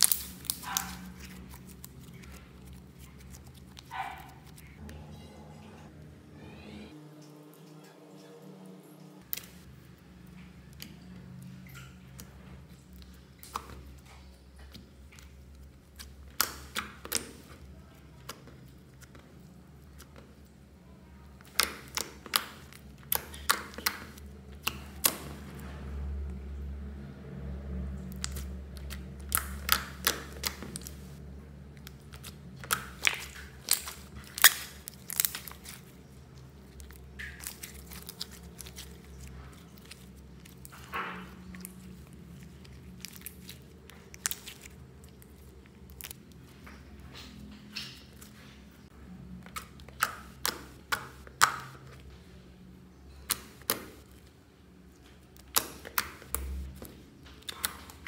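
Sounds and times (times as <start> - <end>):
slime clicking and popping: 0.0 - 3.9, 15.9 - 17.6, 21.4 - 25.4, 28.1 - 31.1, 31.7 - 41.8, 42.7 - 46.4, 49.4 - 52.0, 53.1 - 54.2, 55.2 - 58.0
slime squishing: 0.0 - 7.0, 9.2 - 58.0.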